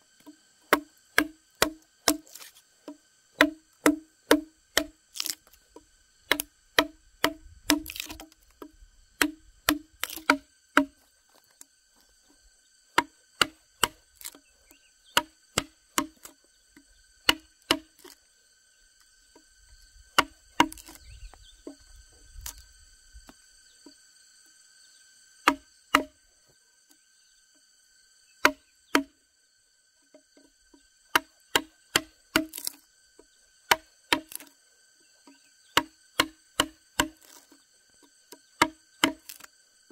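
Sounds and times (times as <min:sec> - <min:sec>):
insect chirring: 0:00.0 - 0:39.9
mallet knocking chisel into log: 0:00.7 - 0:02.5, 0:03.4 - 0:05.4, 0:06.3 - 0:11.0, 0:17.3 - 0:18.1, 0:20.2 - 0:21.0, 0:25.4 - 0:26.1, 0:28.4 - 0:29.1, 0:31.1 - 0:32.8, 0:33.7 - 0:34.5, 0:35.8 - 0:37.4, 0:38.6 - 0:39.5.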